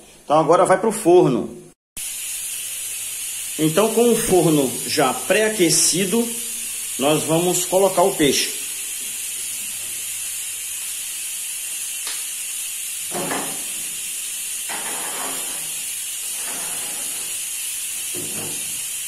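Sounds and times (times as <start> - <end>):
steady hiss: 2.0 - 19.0
oven door and tray clanking: 14.7 - 15.8.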